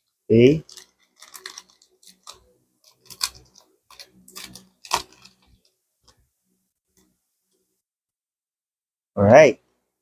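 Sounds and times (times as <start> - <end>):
cards clicking and rustling: 0.6 - 5.6.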